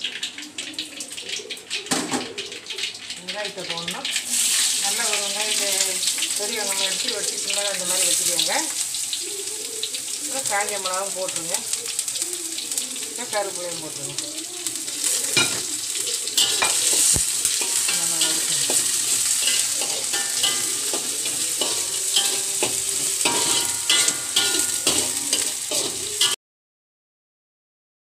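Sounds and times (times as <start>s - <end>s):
food sizzling in hot oil: 0.0s - 26.4s
stirring scrapes against pan: 16.4s - 26.4s.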